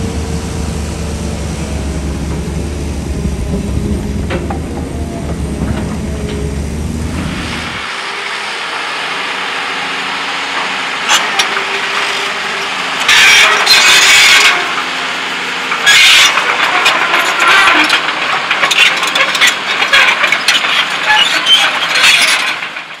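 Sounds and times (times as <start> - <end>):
construction machinery engine hum: 0.0 - 23.0
loud rushing bursts: 2.5 - 15.7
crackling and clattering: 15.8 - 23.0.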